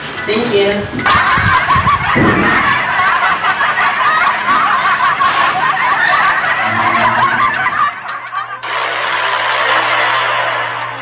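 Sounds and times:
laughter: 1.0s - 8.7s.

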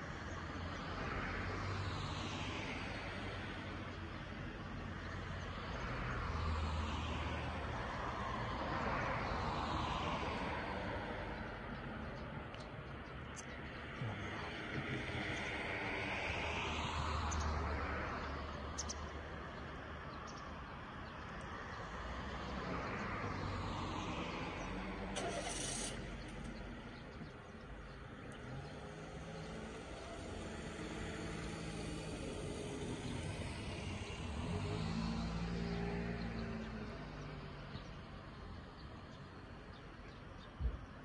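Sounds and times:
vehicles passing by: 0.0s - 41.0s.

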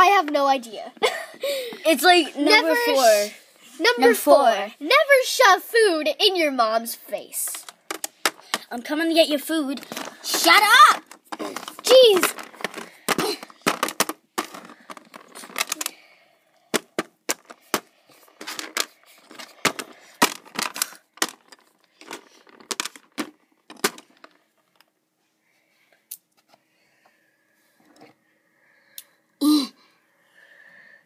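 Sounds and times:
plastic toys clattering on plastic: 7.4s - 16.0s, 16.7s - 24.9s.

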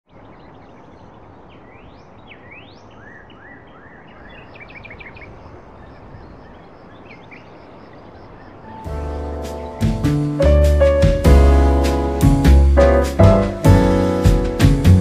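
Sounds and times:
birds singing and chirping: 0.1s - 11.0s
outdoor background hiss: 0.1s - 15.0s.

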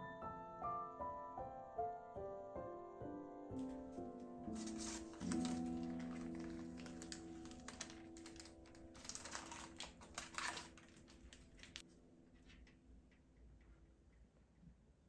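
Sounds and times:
baking paper crinkling: 3.7s - 11.9s.

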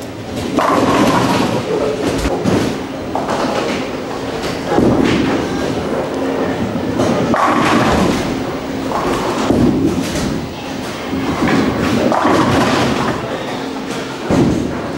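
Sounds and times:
bowling alley rumble and clatter: 0.0s - 14.9s
bowling ball rolling: 0.1s - 14.9s
ball crashing into pins: 0.4s - 5.5s, 7.0s - 10.4s, 11.1s - 13.2s.

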